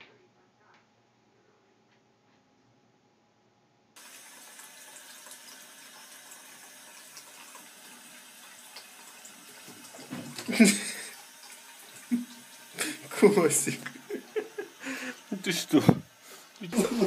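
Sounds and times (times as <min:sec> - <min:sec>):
tap water running into bathtub: 0:04.0 - 0:17.0.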